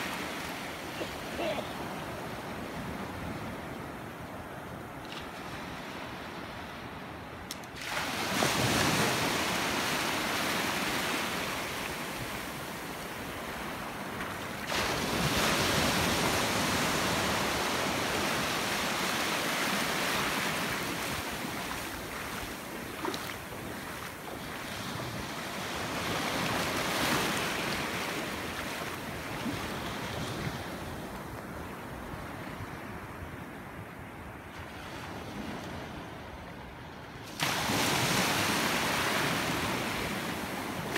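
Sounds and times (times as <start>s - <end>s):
small waves breaking: 7.6s - 33.1s, 37.2s - 40.9s.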